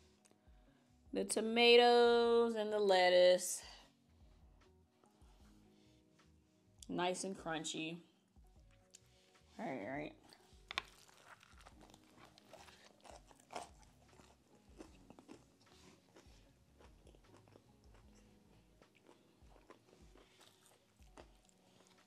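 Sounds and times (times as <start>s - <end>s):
crunching and chewing crispy food: 10.2s - 22.0s.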